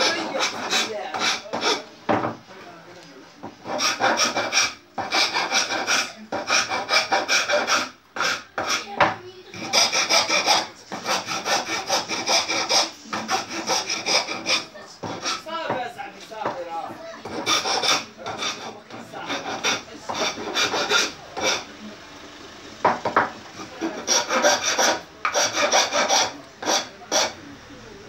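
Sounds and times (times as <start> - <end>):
hand plane scraping wood: 0.0 - 1.9, 3.4 - 15.6, 17.2 - 21.7, 23.6 - 27.4.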